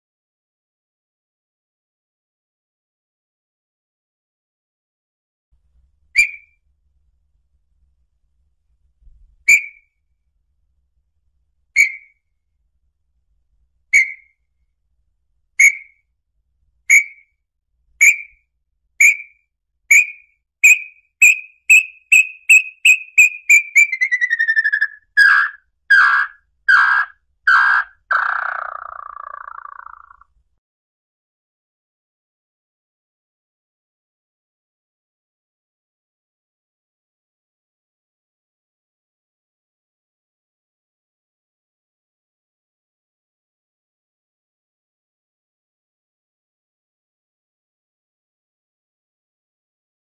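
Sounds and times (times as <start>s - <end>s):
bird whistled notes and trill: 6.2s - 6.6s, 9.5s - 9.9s, 11.8s - 12.2s, 13.9s - 14.4s, 15.6s - 16.0s, 16.9s - 17.4s, 18.0s - 18.4s, 19.0s - 30.2s.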